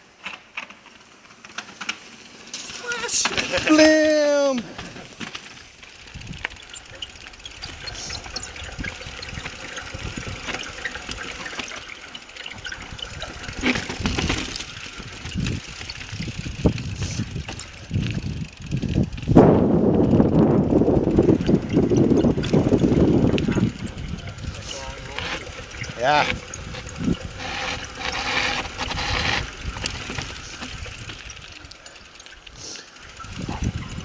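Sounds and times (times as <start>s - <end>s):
bike knocking and rattling: 0.0s - 34.0s
bike tyres over dirt and rock: 0.0s - 34.0s
wind on microphone: 12.6s - 31.4s, 33.2s - 34.0s.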